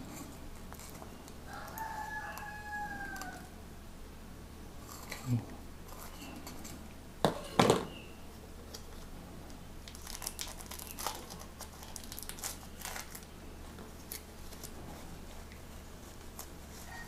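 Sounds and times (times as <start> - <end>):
plastic wrapping crinkling: 9.8 - 17.0.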